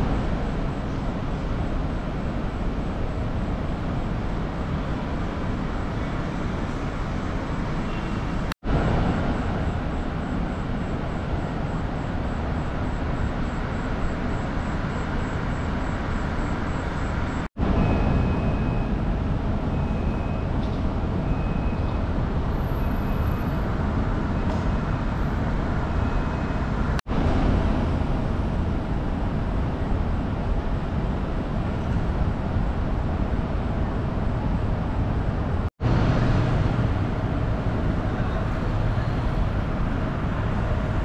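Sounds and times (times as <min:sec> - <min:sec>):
city traffic: 0:00.0 - 0:41.0
wind rumble: 0:00.0 - 0:41.0.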